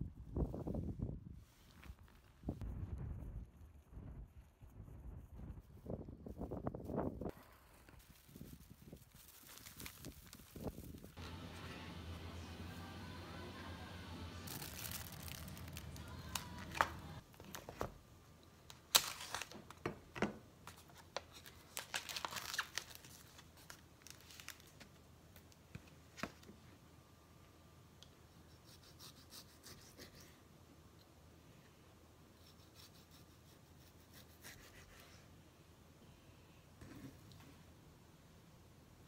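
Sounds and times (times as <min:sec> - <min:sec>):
cling film crinkling and tearing: 0:07.5 - 0:11.5, 0:14.2 - 0:17.9, 0:18.7 - 0:19.8, 0:20.7 - 0:25.0.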